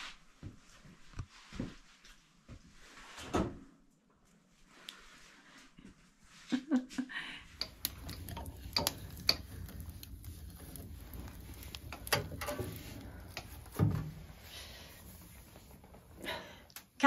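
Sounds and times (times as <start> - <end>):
clicks and knocks from stove: 7.6 - 14.8
stove door shutting: 7.6 - 16.5.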